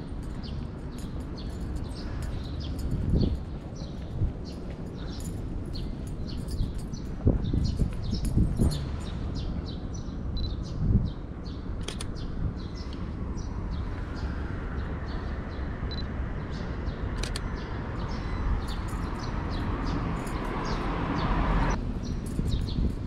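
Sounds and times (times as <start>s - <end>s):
small birds chirping: 0.0s - 23.0s
sharp click: 11.8s - 12.2s, 17.2s - 17.5s.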